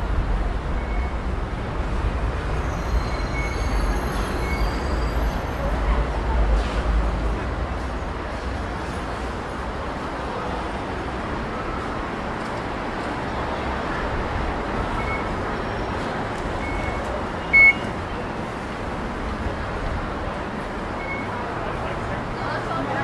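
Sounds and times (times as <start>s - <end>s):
busy train station background: 0.0s - 23.0s
short high electronic beeps: 16.6s - 17.9s.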